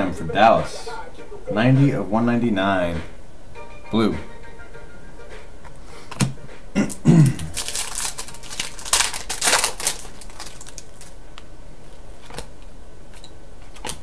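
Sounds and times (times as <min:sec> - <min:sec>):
foil wrappers crinkling: 0:07.2 - 0:11.2.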